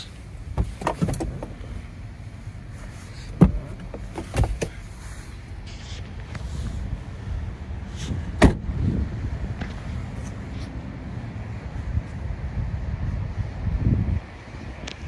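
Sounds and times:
low steady rumble: 0.0 - 15.0
clicks and knocks in car cabin: 0.5 - 1.8, 3.2 - 4.9, 8.4 - 8.7.

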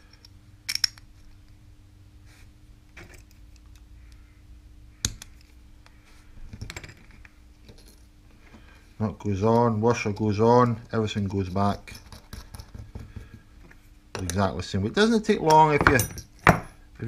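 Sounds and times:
small metal parts clicking: 0.0 - 1.4
steady low hum: 0.0 - 17.0.

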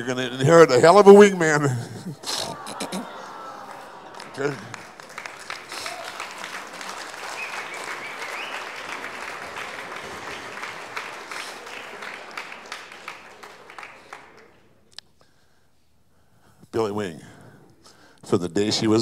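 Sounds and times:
audience applauding: 2.0 - 14.9.

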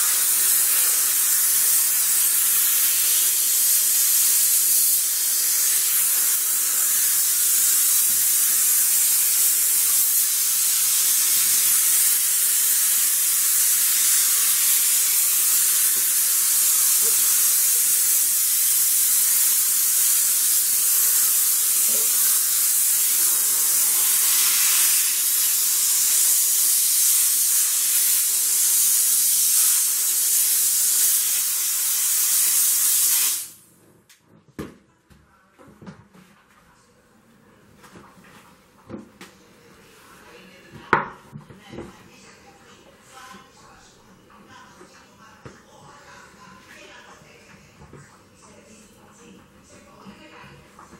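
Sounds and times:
steam cleaner hissing: 0.0 - 33.6.

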